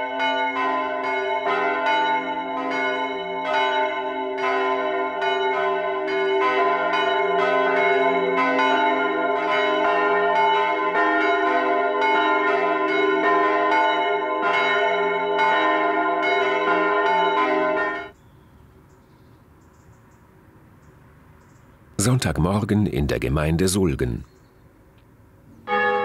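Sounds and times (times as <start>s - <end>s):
church bells pealing: 0.0s - 18.2s, 25.7s - 26.0s.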